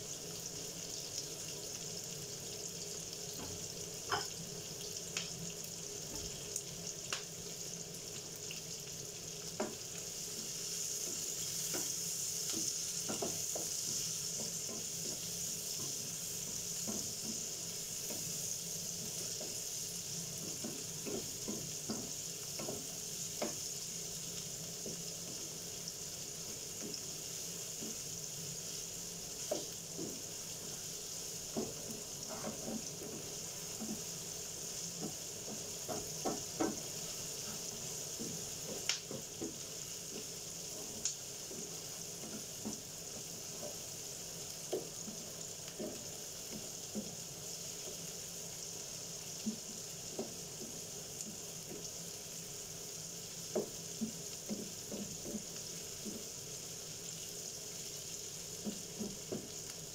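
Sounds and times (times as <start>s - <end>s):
onions sizzling in a frying pan: 0.0s - 59.9s
wooden spatula scraping a pan: 31.5s - 34.2s.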